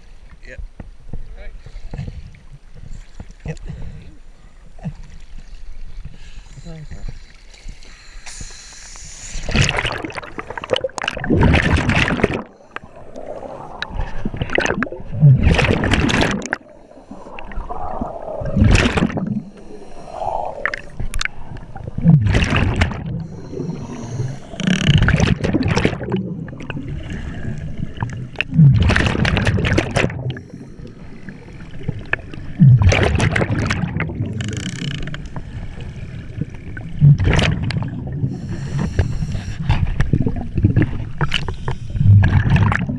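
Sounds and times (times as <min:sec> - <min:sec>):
diver breathing through regulator: 0:07.6 - 0:10.9, 0:12.4 - 0:14.4, 0:16.5 - 0:21.6, 0:23.2 - 0:25.0, 0:30.3 - 0:32.0, 0:37.8 - 0:40.0, 0:41.2 - 0:42.2
rush of exhaled bubbles: 0:08.3 - 0:34.5, 0:35.5 - 0:42.9.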